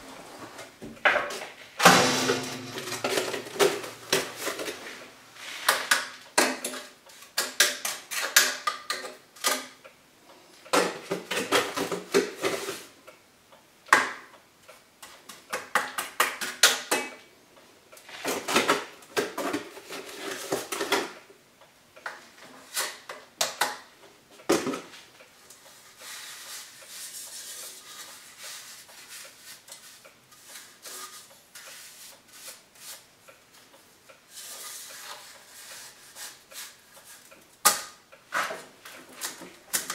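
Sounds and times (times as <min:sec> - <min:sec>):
faint rustling and scraping: 0:24.8 - 0:37.4.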